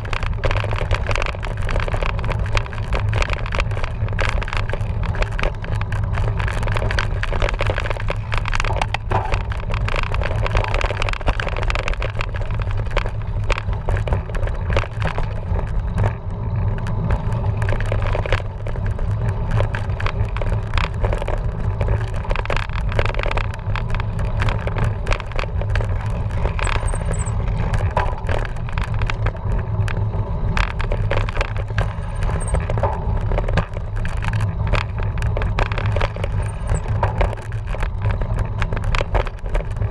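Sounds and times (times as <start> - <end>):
bike rattling over rough ground: 0.0 - 39.9.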